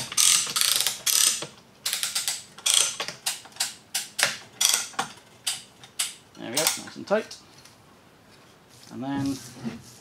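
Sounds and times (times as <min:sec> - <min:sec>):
ratchet tensioner clicking: 0:00.0 - 0:06.8.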